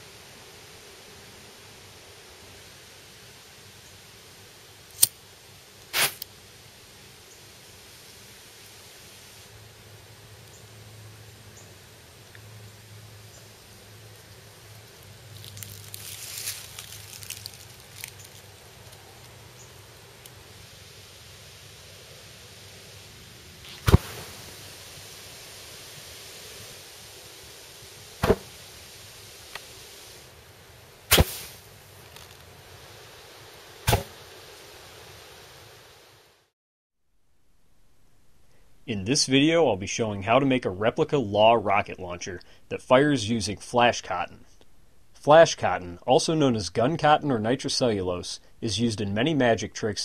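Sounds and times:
steady background hiss: 0.0 - 36.5, 37.1 - 50.0
small crackles: 4.9 - 5.2, 14.1 - 20.4, 31.1 - 33.2
sharp whooshes: 5.9 - 6.2, 23.7 - 24.5, 28.2 - 28.6, 31.1 - 31.6, 33.8 - 34.2
cotton rustling and scraping: 15.3 - 18.4.

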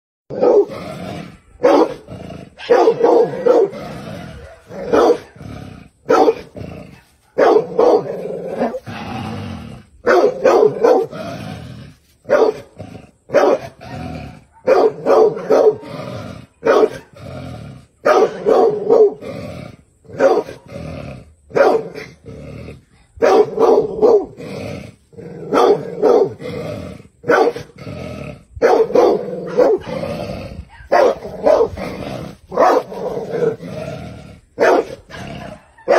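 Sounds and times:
dog barking: 0.3 - 0.7, 1.6 - 2.0, 2.6 - 5.4, 6.1 - 8.8, 10.0 - 11.2, 12.3 - 12.7, 13.3 - 15.9, 16.6 - 17.1, 18.0 - 19.2, 20.1 - 20.6, 21.5 - 22.0, 23.2 - 24.4, 25.5 - 26.4, 27.2 - 27.7, 28.6 - 30.1, 30.7 - 31.8, 32.5 - 33.6, 34.6 - 35.9
dog growling: 0.3 - 7.1, 7.7 - 19.8, 20.4 - 23.1, 23.8 - 35.9.

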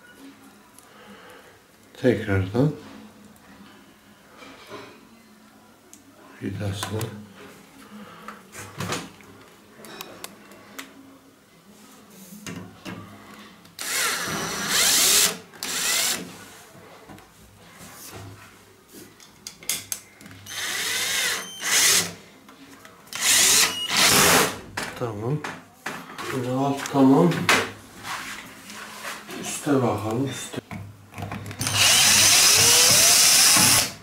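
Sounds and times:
cordless drill driving screws: 13.8 - 16.2, 20.5 - 22.1, 23.1 - 24.5, 31.6 - 34.0.

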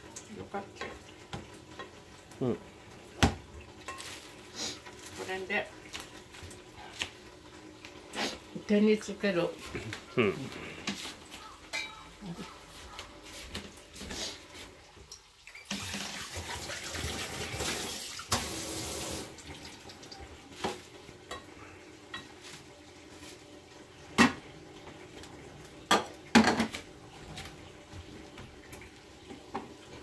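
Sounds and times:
kitchen tap running: 0.0 - 10.0, 13.6 - 21.3.

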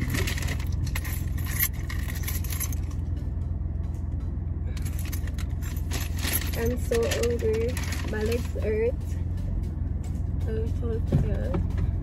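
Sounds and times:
items rustling and clinking: 0.0 - 3.1, 4.8 - 8.7
car engine idling: 0.0 - 12.0.

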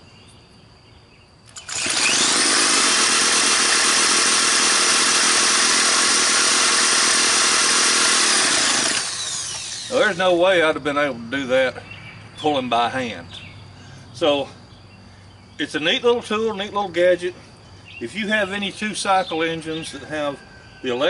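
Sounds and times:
electric drill spinning: 1.5 - 10.2
string trimmer engine running: 1.5 - 10.3.

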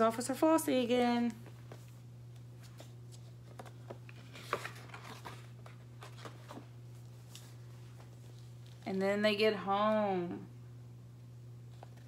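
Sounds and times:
steady low hum: 0.0 - 12.0
book pages rustling: 1.5 - 8.8.

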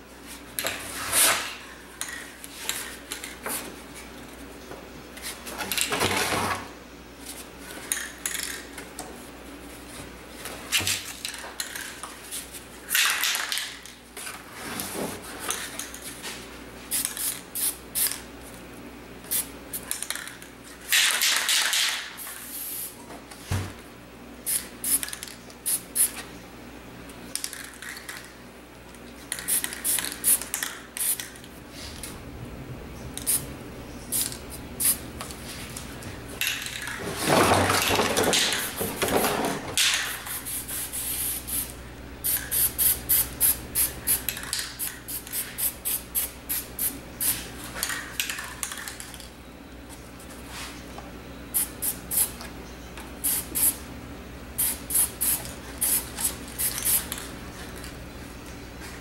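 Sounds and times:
spray paint cans hissing: 16.9 - 18.2, 19.2 - 20.3, 20.9 - 23.0, 24.4 - 26.2, 29.3 - 31.4, 33.2 - 33.4, 34.1 - 35.0, 38.2 - 39.0, 39.8 - 49.0, 51.5 - 52.4, 53.2 - 53.8, 54.6 - 57.9.

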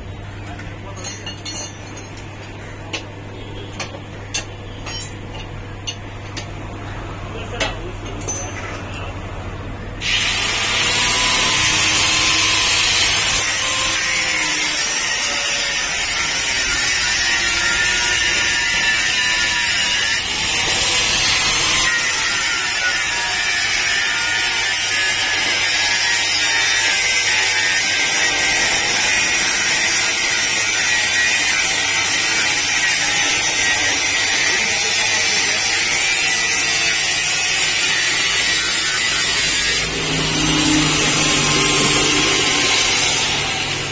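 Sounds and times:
angle grinder cutting metal: 10.0 - 43.9.

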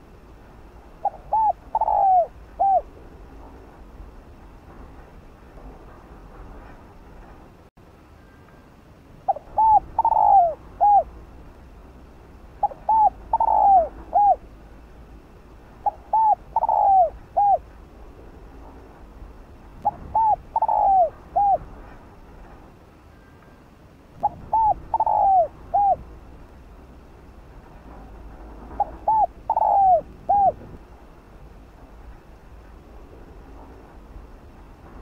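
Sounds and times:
dove cooing: 1.0 - 3.0, 9.3 - 11.1, 12.6 - 14.5, 15.8 - 17.6, 19.8 - 21.7, 24.2 - 26.1, 28.8 - 30.6.

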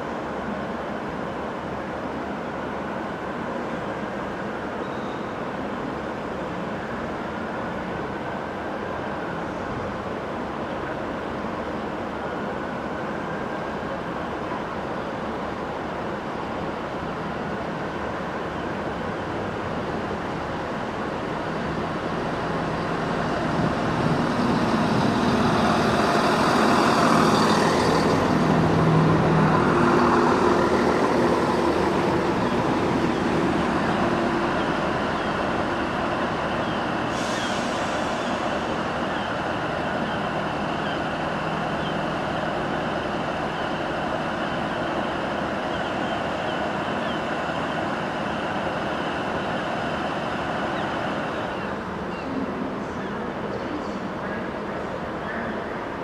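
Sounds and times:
diesel train engines running: 0.0 - 56.0
brief high squeal: 37.2 - 38.4.

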